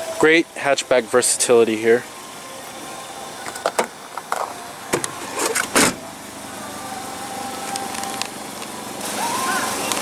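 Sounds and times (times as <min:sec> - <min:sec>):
car hatch thudding shut: 0:03.5 - 0:06.1.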